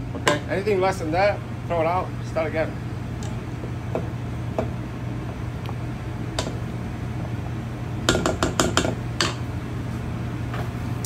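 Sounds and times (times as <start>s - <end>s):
steady low hum: 0.0s - 11.0s
spatula knocking in metal bowl: 8.1s - 9.4s.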